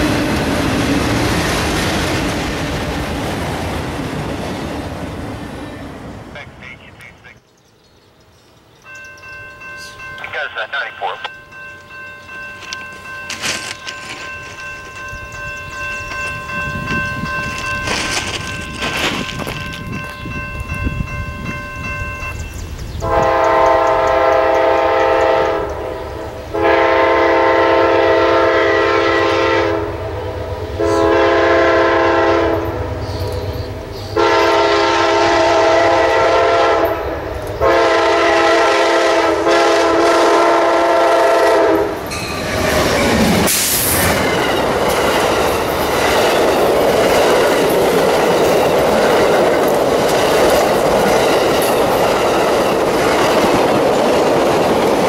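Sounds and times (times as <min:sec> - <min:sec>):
train rumbling past: 0:00.0 - 0:07.4, 0:08.2 - 0:55.0
wheels clicking over rail joints: 0:11.7 - 0:20.9, 0:42.0 - 0:55.0
train horn blasts: 0:23.0 - 0:42.0.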